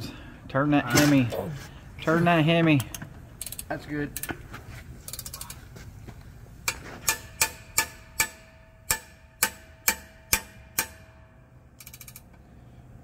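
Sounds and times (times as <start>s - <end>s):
hammer striking metal wrench: 6.6s - 12.2s.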